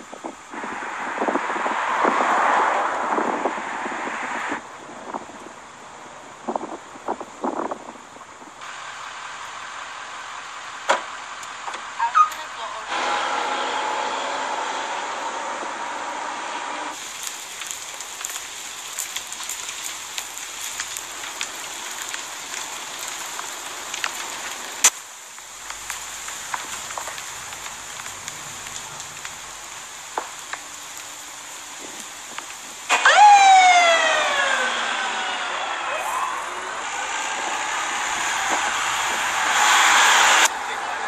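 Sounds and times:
fire hissing: 0:00.0 - 0:12.1, 0:12.8 - 0:41.0
fire crackling and popping: 0:00.0 - 0:41.0
fire engine siren: 0:12.9 - 0:17.0, 0:32.9 - 0:41.0.

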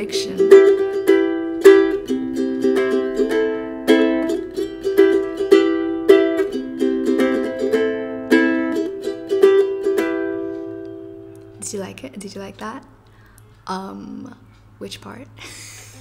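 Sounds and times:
ukulele strumming: 0:00.0 - 0:12.0.

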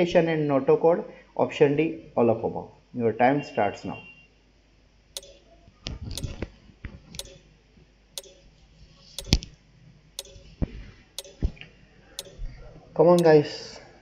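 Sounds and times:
timer ticking: 0:05.2 - 0:05.5, 0:06.2 - 0:06.4, 0:07.2 - 0:07.4, 0:08.2 - 0:08.5, 0:09.2 - 0:09.4, 0:10.2 - 0:10.5, 0:11.2 - 0:11.5, 0:12.2 - 0:12.4.

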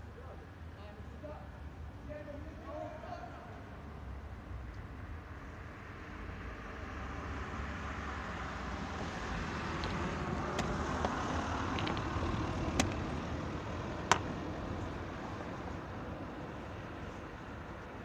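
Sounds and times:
street traffic hum: 0:00.0 - 0:18.0
chess pieces set down: 0:09.8 - 0:12.2, 0:14.0 - 0:14.3.

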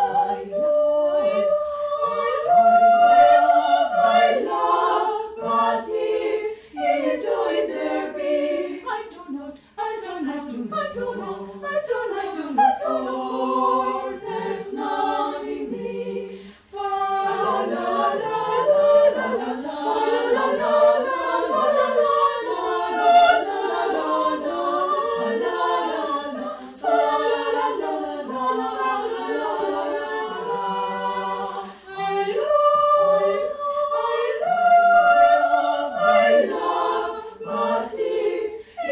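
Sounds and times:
mixed choir singing a cappella: 0:00.0 - 0:38.9.

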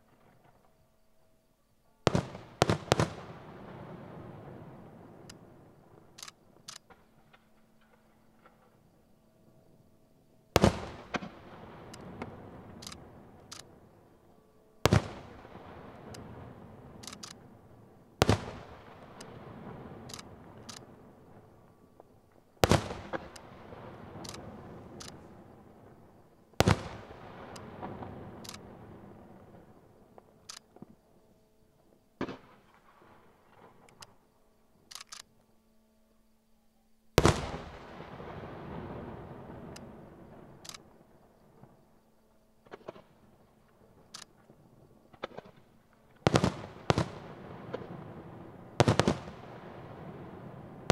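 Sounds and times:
firework shells bursting: 0:02.1 - 0:03.5, 0:10.6 - 0:13.8, 0:18.2 - 0:21.0, 0:22.6 - 0:26.0, 0:26.6 - 0:28.9, 0:45.1 - 0:50.9
firework pops and crackles: 0:02.1 - 0:05.5, 0:06.1 - 0:08.8, 0:10.6 - 0:13.7, 0:14.9 - 0:16.4, 0:17.0 - 0:17.4, 0:18.2 - 0:21.0, 0:22.3 - 0:25.5, 0:26.6 - 0:31.0, 0:32.2 - 0:34.2, 0:37.2 - 0:41.0, 0:42.6 - 0:50.9
faint sharp clicks: 0:05.2 - 0:05.4, 0:06.2 - 0:08.7, 0:11.9 - 0:13.8, 0:17.0 - 0:17.4, 0:20.1 - 0:20.9, 0:24.2 - 0:24.4, 0:25.0 - 0:25.2, 0:28.4 - 0:28.7, 0:30.2 - 0:30.9, 0:33.5 - 0:34.2, 0:34.9 - 0:35.4, 0:39.7 - 0:39.9, 0:40.6 - 0:40.9, 0:44.1 - 0:44.4
rolling echo: 0:10.6 - 0:14.2, 0:42.6 - 0:50.9.

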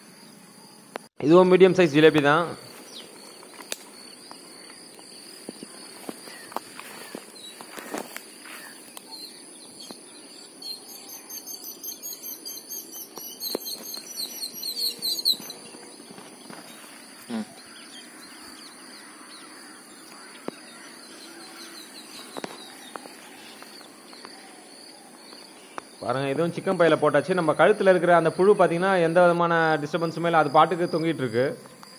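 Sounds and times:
high insect drone: 0:00.0 - 0:31.9
bird chirping high: 0:01.9 - 0:26.7.

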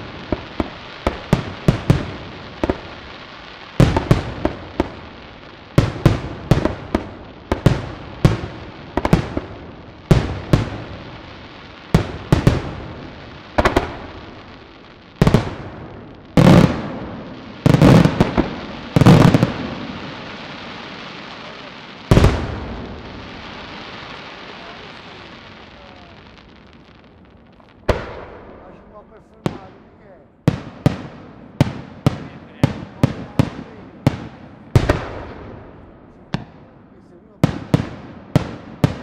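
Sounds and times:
crackling tails: 0:00.0 - 0:39.0
firework shells bursting: 0:03.7 - 0:39.0.

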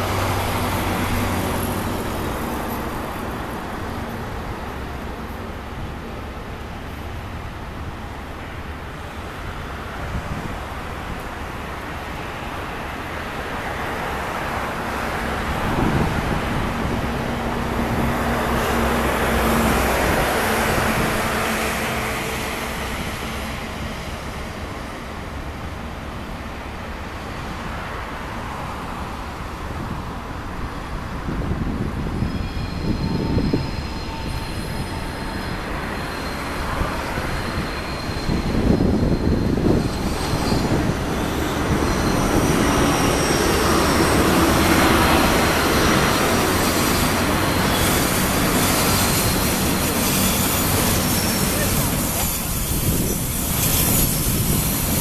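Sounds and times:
diesel train engine drone: 0:00.0 - 0:55.0
train rumble: 0:00.0 - 0:55.0
high-pitched wheel squeal: 0:32.1 - 0:55.0.

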